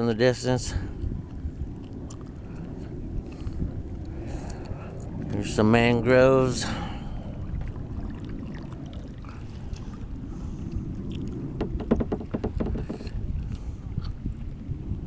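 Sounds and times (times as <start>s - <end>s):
wind on microphone: 0.0s - 15.0s
water against kayak hull: 0.6s - 15.0s
paddle splashes and drips: 6.5s - 14.7s.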